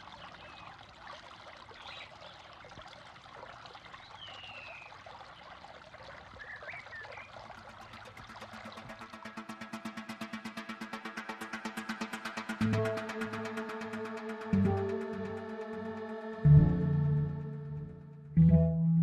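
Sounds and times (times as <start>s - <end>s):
water trickling and gurgling: 0.0s - 13.0s
bird chirps: 6.3s - 9.1s
rhythmic music: 7.6s - 19.0s.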